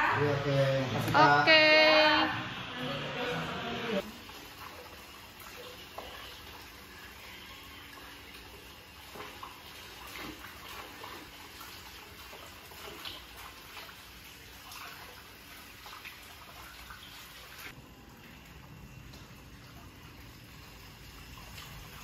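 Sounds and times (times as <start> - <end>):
water lapping and splashing: 4.0 - 22.0
water trickling: 4.0 - 22.0.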